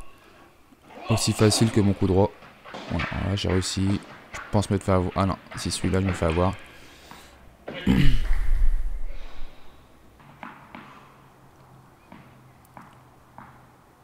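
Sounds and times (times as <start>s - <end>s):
tennis ball bouncing on court: 2.4s - 7.2s, 10.2s - 13.8s.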